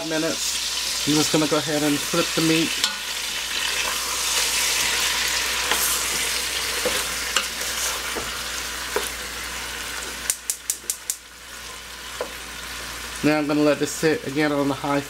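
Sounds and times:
meat sizzling in oil: 0:00.0 - 0:15.0
wooden spoon scraping and knocking: 0:03.8 - 0:09.2.

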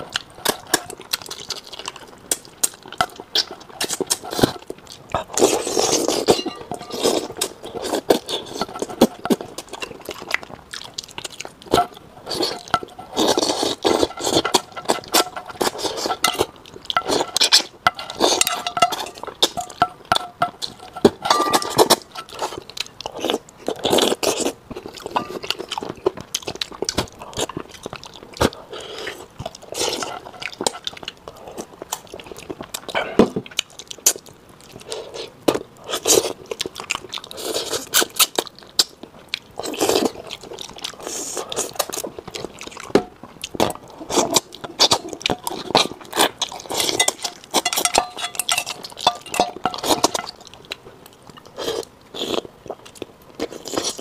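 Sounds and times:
wet chewing and lip-smacking: 0:00.0 - 0:54.0
chopsticks clinking on metal bowl: 0:06.3 - 0:07.2, 0:16.1 - 0:22.4, 0:25.1 - 0:25.6, 0:46.9 - 0:50.4.

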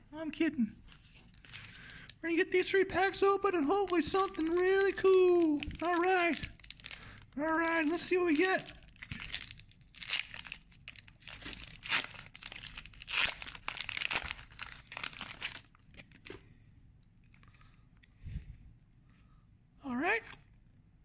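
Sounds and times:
foil wrapper crinkling and tearing: 0:01.0 - 0:02.2, 0:03.6 - 0:16.3.

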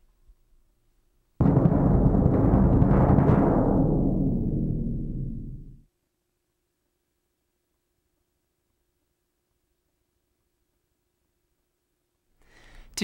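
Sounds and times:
bass drum roll: 0:01.4 - 0:05.9.

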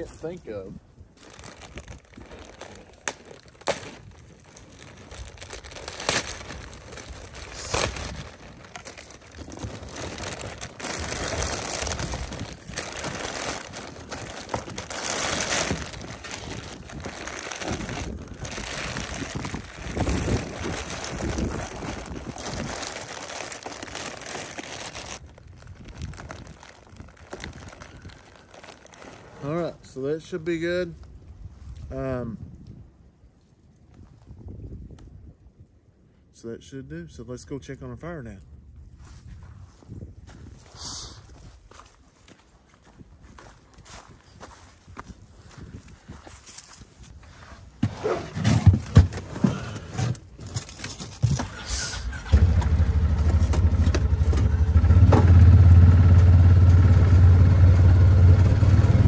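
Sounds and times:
plastic sheeting crinkling: 0:01.2 - 0:29.6.

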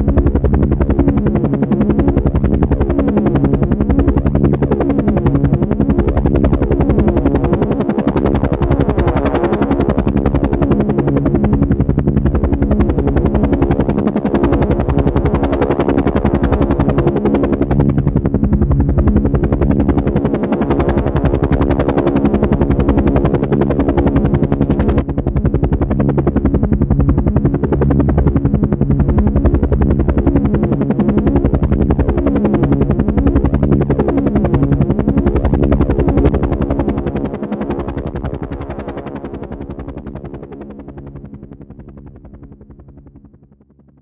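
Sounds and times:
helicopter rotor blades chopping: 0:00.0 - 0:44.0.

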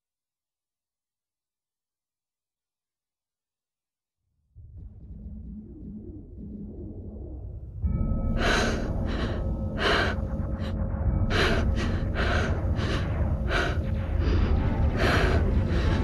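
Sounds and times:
person breathing heavily: 0:08.3 - 0:16.0.

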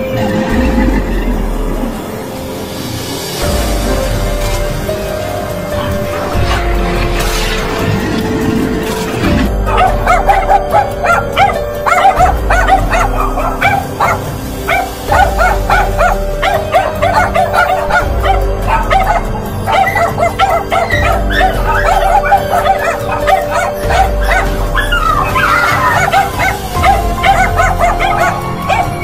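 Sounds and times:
music with pulsing beat and drone: 0:00.0 - 0:29.0
dog barking and yelping: 0:09.6 - 0:29.0.

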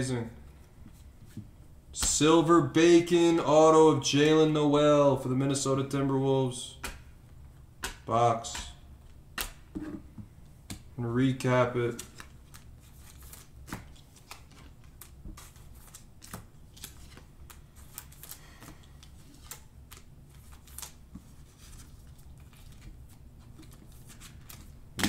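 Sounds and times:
cards clicking and sliding: 0:11.9 - 0:24.8.

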